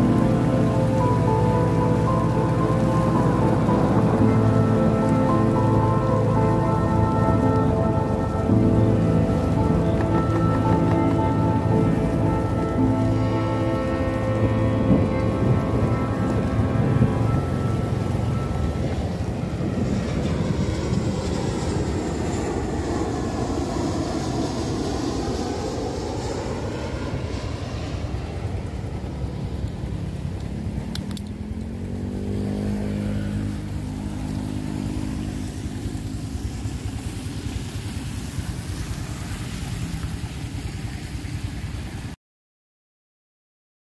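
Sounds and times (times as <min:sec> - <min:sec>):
rain: 0:00.0 - 0:25.5, 0:28.1 - 0:42.2
rising hum: 0:00.0 - 0:40.6
jet engine rumble: 0:00.0 - 0:42.2
motorcycle engine running: 0:29.8 - 0:42.0
sweeping hiss: 0:33.6 - 0:42.0.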